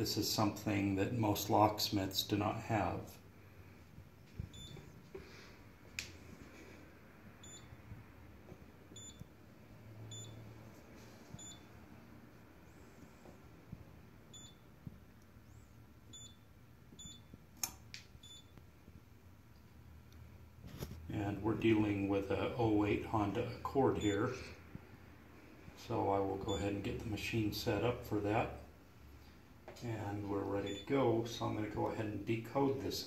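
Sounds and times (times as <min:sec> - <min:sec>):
sharp clicks: 0:17.1 - 0:18.7.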